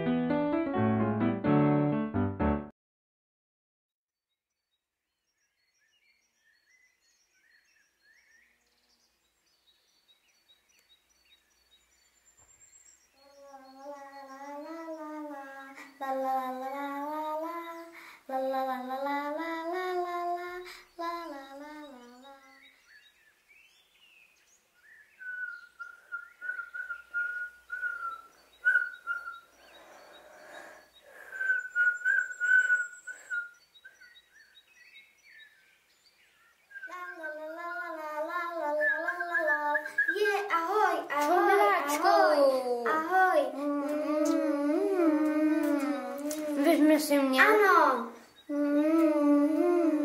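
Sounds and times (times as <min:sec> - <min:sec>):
child singing: 0:13.3 - 0:22.6, 0:36.8 - 0:50.0
person whistling high note: 0:31.3 - 0:33.5.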